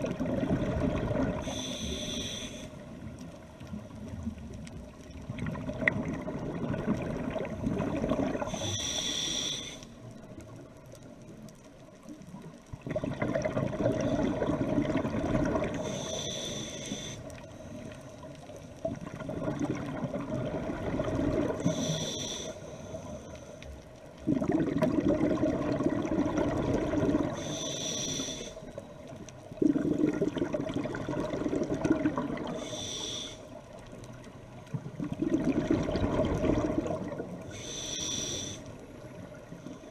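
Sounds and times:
bubbling exhale underwater: 0:00.0 - 0:02.1, 0:05.2 - 0:08.7, 0:12.8 - 0:16.1, 0:19.0 - 0:22.1, 0:24.2 - 0:27.6, 0:29.6 - 0:32.8, 0:34.7 - 0:37.4
regulator inhale hiss: 0:01.4 - 0:03.0, 0:08.4 - 0:10.2, 0:15.7 - 0:18.3, 0:21.5 - 0:23.8, 0:27.2 - 0:28.8, 0:32.4 - 0:33.8, 0:37.4 - 0:38.9.

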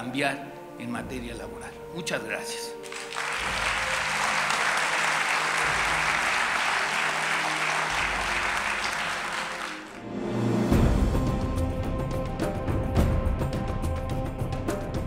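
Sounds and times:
audience applauding: 0:02.8 - 0:10.1.

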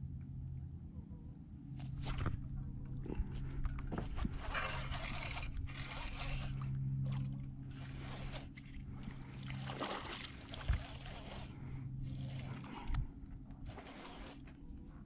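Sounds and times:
steady low hum: 0:00.0 - 0:15.0
handling clicks and scrapes: 0:01.8 - 0:07.0, 0:10.6 - 0:15.0
heavy mouth breathing: 0:02.9 - 0:03.8, 0:10.7 - 0:14.4.

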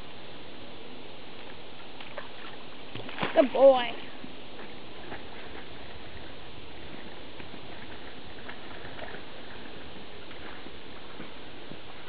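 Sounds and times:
flowing creek water: 0:00.0 - 0:12.0
small splashes: 0:02.0 - 0:06.3.

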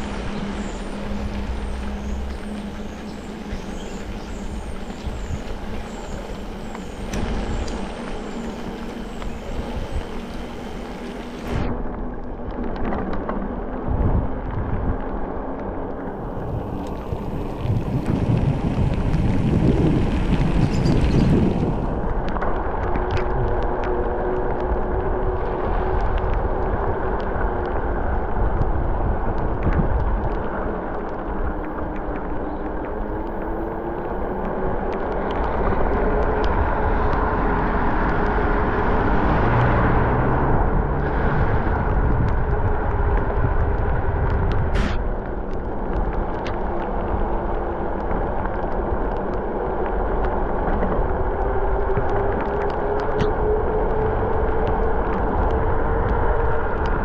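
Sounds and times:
hum wavering in pitch: 0:00.0 - 0:12.9
bike tyres on road: 0:00.0 - 0:57.0
wind on microphone: 0:00.0 - 0:57.0.

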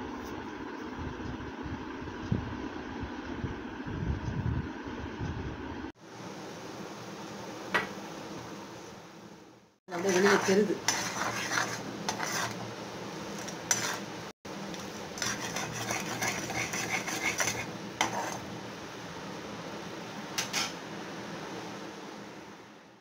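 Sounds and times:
syrup boiling hiss: 0:06.0 - 0:21.1
spatula scraping a pan: 0:09.9 - 0:18.5, 0:20.4 - 0:20.8.

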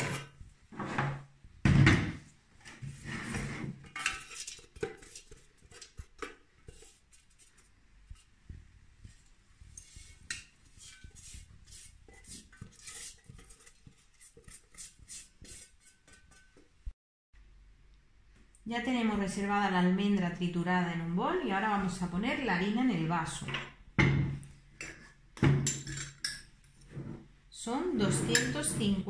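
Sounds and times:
spatula scraping metal jar: 0:00.0 - 0:00.4, 0:03.0 - 0:07.4, 0:09.8 - 0:16.6, 0:28.0 - 0:29.0.

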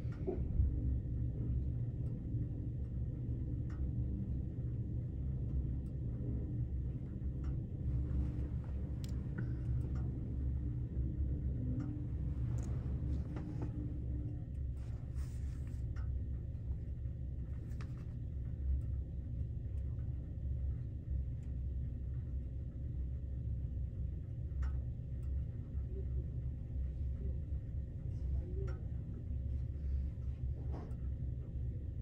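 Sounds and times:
faint steady tone: 0:00.0 - 0:32.0
train car hum and rumble: 0:00.0 - 0:32.0
soft clicks: 0:07.4 - 0:10.5, 0:11.7 - 0:13.9.

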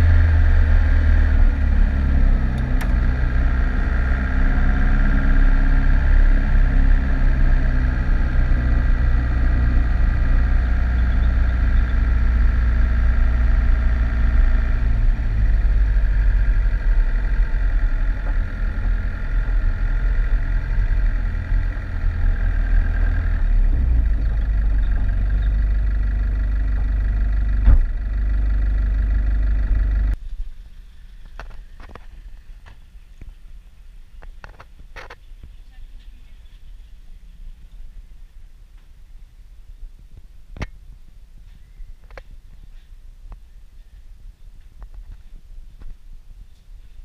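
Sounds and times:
vehicle engine running: 0:00.0 - 0:30.2
heavy low rumble: 0:00.0 - 0:30.6
quiet outdoor sound: 0:00.0 - 0:47.0.

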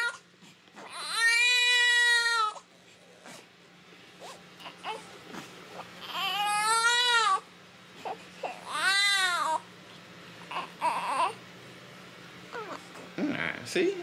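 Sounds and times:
newborn baby crying: 0:00.0 - 0:00.2, 0:00.8 - 0:02.7, 0:04.6 - 0:05.1, 0:06.0 - 0:09.6, 0:10.4 - 0:11.4, 0:12.5 - 0:13.0.

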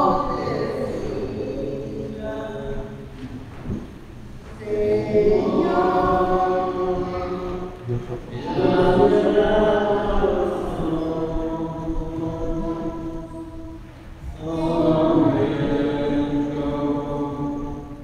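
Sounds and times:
church choir singing a hymn: 0:00.0 - 0:18.0.

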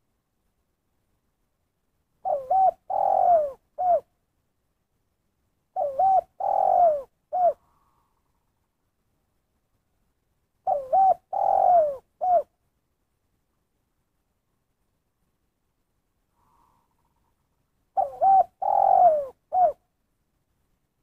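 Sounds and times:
dove cooing: 0:02.2 - 0:04.1, 0:05.7 - 0:08.0, 0:10.6 - 0:12.5, 0:16.4 - 0:19.8.

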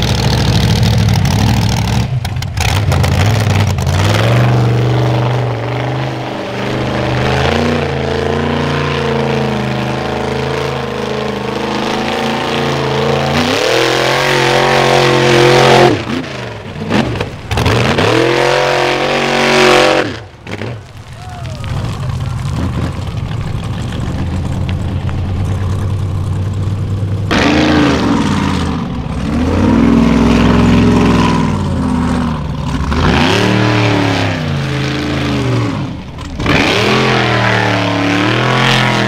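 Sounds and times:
buggy engine revving: 0:00.0 - 0:39.0.

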